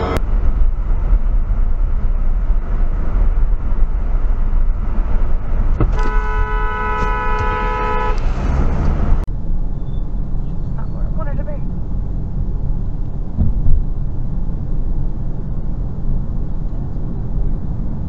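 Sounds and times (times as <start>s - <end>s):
road and engine rumble: 0.0s - 18.0s
two-note car horn: 5.9s - 8.2s.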